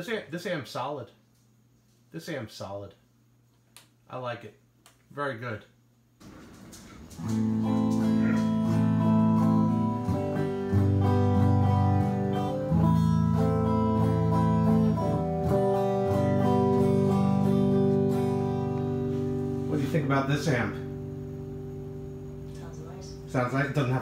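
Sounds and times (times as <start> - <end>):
plucked electric bass guitar: 7.2 - 24.0.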